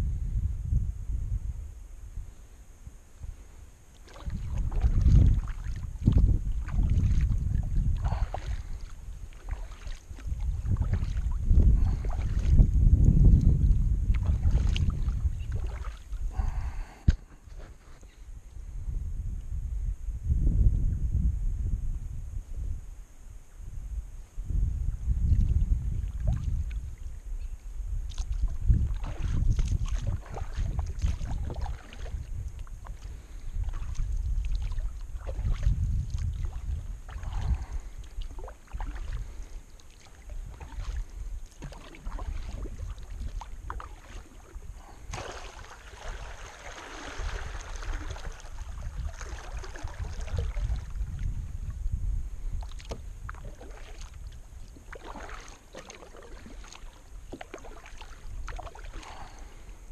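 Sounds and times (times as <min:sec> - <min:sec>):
wind rumble on microphone: 0:00.0 - 0:59.9
paddle splashing in water: 0:03.9 - 0:12.6, 0:13.6 - 0:18.0, 0:26.0 - 0:27.2, 0:28.1 - 0:51.4, 0:52.5 - 0:59.7
water dripping off paddle: 0:08.0 - 0:11.3, 0:28.1 - 0:50.6, 0:52.5 - 0:59.4.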